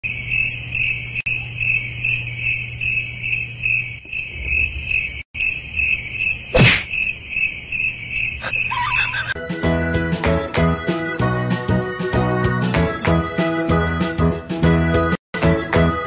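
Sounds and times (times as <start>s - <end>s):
cricket-like chirping: 0.0s - 9.4s.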